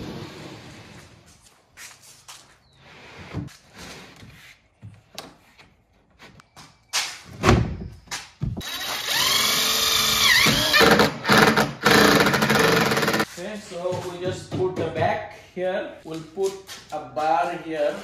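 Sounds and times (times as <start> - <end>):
cordless drill driving a screw: 8.6 - 13.3.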